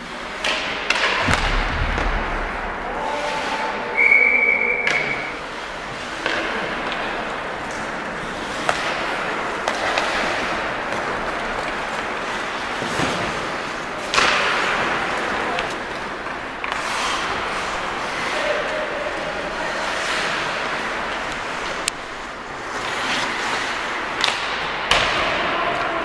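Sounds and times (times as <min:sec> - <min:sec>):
hockey sticks clacking on puck: 0:00.0 - 0:01.5, 0:03.1 - 0:26.0
skates scraping ice: 0:00.0 - 0:26.0
loud bang: 0:01.2 - 0:04.4.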